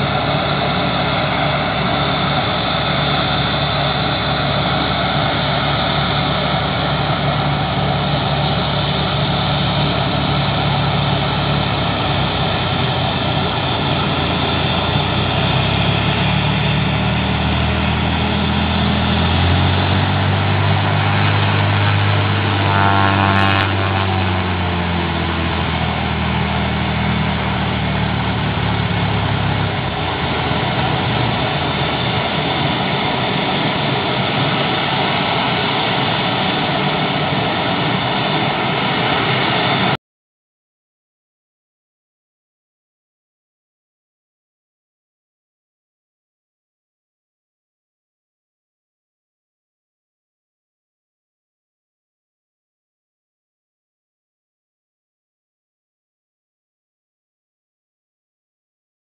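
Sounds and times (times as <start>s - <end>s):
propeller plane engine taxiing: 0.0s - 40.0s.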